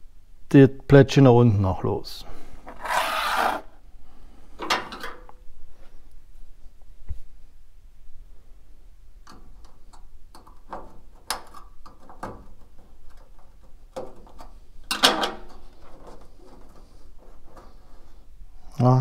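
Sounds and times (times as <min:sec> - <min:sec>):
metal rattle: 0:04.6 - 0:05.3.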